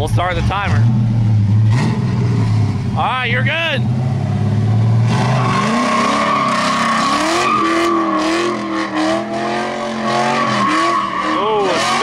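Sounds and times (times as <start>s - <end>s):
car engine revving: 0.0s - 12.0s
tyres squealing: 5.1s - 12.0s.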